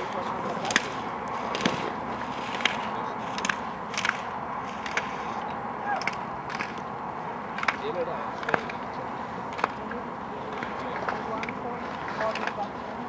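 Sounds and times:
slalom poles clacking: 0.0 - 6.9, 7.5 - 8.9.

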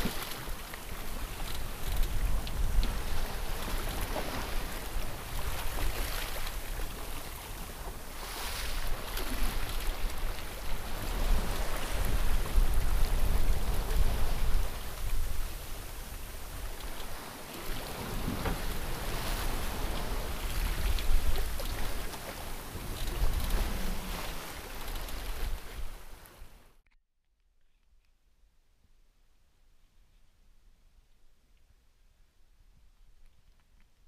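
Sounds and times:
wind rumbling on microphone: 0.0 - 26.6
waves splashing along hull: 0.0 - 26.7.

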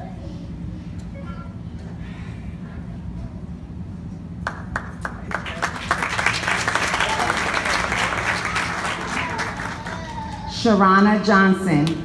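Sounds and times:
audience clapping: 4.4 - 10.5.

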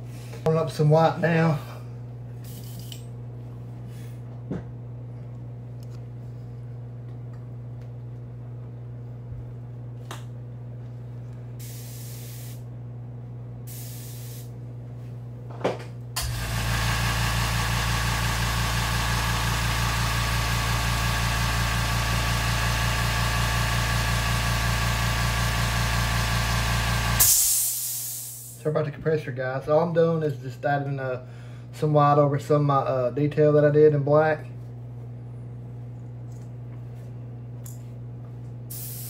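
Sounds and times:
air compressor pulsing: 11.6 - 12.6, 13.7 - 14.5, 16.2 - 28.6, 38.7 - 39.0
airbrush hisses: 11.6 - 12.6, 13.7 - 14.5, 38.7 - 39.0.

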